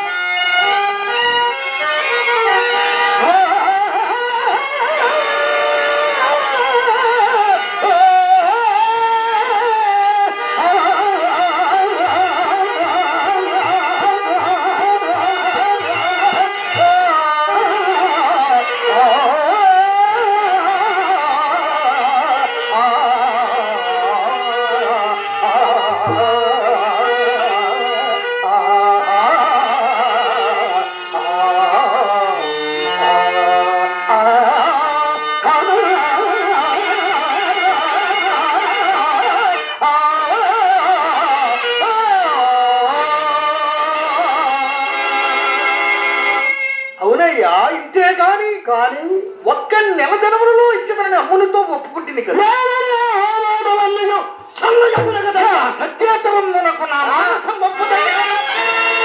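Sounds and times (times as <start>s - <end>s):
man singing into microphone: 0.0s - 45.6s, 47.0s - 59.0s
instrumental accompaniment: 0.0s - 59.0s.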